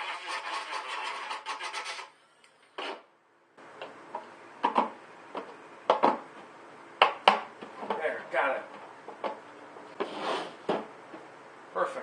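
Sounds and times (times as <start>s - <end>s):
rotary tool grinding plastic: 0.0s - 2.1s.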